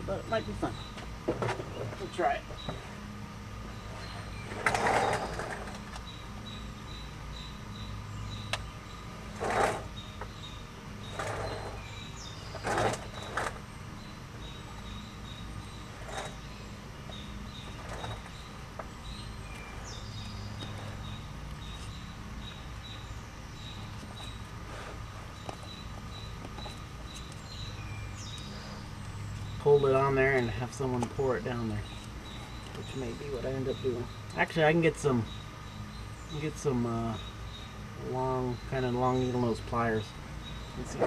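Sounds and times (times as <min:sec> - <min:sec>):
steady low hum: 0:00.0 - 0:41.0
hose scraping and rustling: 0:03.9 - 0:05.9, 0:09.3 - 0:09.9, 0:11.0 - 0:11.9, 0:12.5 - 0:13.6, 0:15.9 - 0:16.4, 0:17.7 - 0:18.4.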